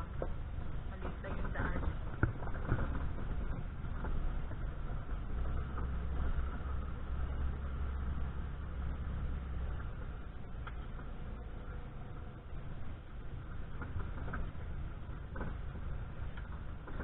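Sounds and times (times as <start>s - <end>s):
car engine drone: 0.0s - 17.0s
road noise: 0.0s - 17.0s.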